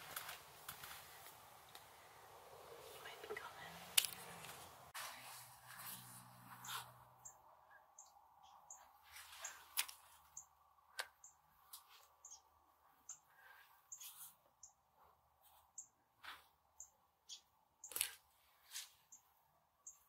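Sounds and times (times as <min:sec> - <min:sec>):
faint high bird chirps: 0:06.5 - 0:14.8, 0:15.5 - 0:20.0.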